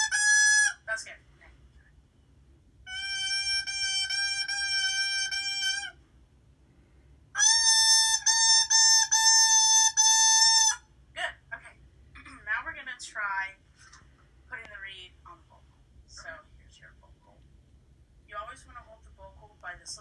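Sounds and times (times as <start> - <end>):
buzzy bassoon reed crow: 2.9 - 6.0, 7.4 - 10.8.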